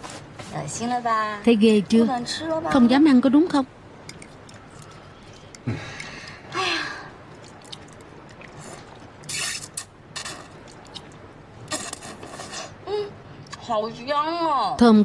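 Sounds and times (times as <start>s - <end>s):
breathy sound: 4.7s - 7.2s.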